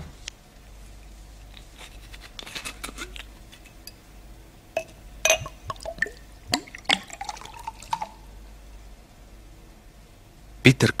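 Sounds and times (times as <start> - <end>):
glass bottle and glass clinking: 4.8 - 8.2
liquid pouring into glass: 4.8 - 8.3.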